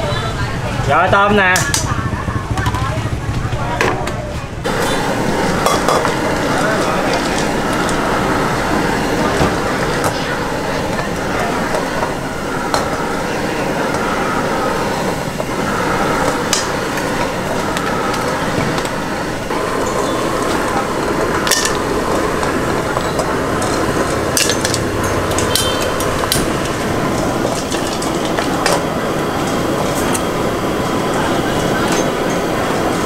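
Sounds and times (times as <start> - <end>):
voices: 0.0 - 33.0
steady loud roar: 4.6 - 33.0
utensils clinking on wok: 5.6 - 6.2, 22.9 - 26.8.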